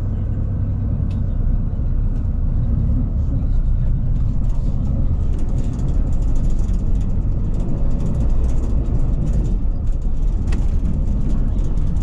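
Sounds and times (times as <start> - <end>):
bus engine and road rumble: 0.0 - 12.0
faint clicks and rattles: 4.1 - 12.0.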